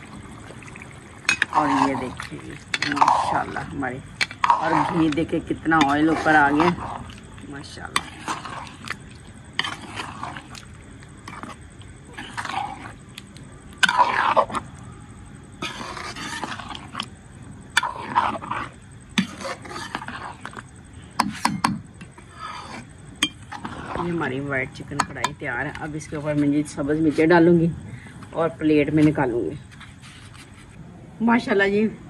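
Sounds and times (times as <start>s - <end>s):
metal spoon scraping through gravy: 0.1s - 14.7s, 15.6s - 27.4s.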